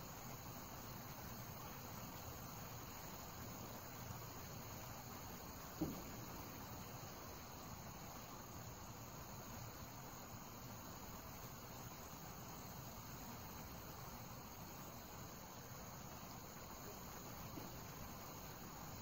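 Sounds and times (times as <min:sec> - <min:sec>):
crickets and insects chirring: 0:00.0 - 0:19.0
dull knock: 0:05.7 - 0:06.4.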